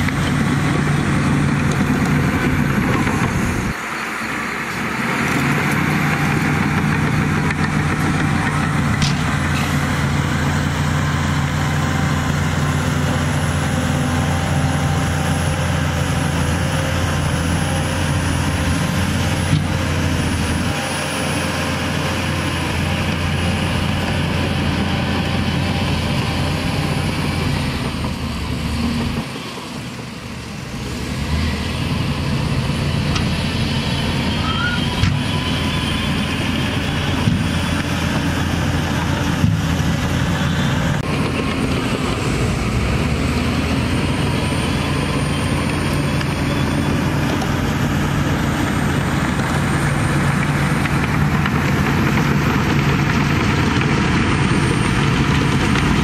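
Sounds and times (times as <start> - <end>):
dump truck diesel engine running: 0.0 - 56.0.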